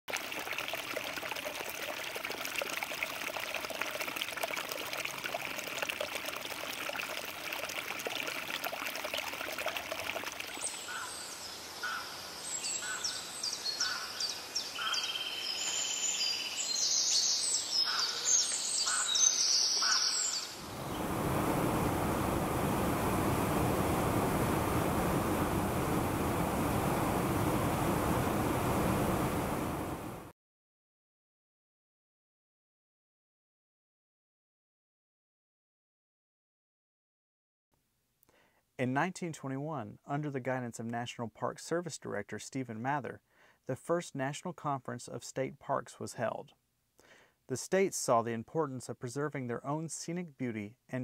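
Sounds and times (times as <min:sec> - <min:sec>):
stream trickling: 0:00.1 - 0:11.6, 0:18.3 - 0:30.3
birds calling: 0:10.5 - 0:21.1
waterfall rushing into pool: 0:20.6 - 0:30.3.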